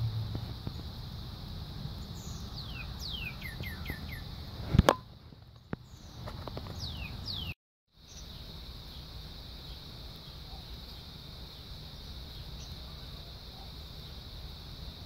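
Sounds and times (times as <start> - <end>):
high-pitched insect drone: 0.0 - 4.6, 8.0 - 15.0
cardinal whistled song: 2.2 - 4.3, 6.8 - 8.2.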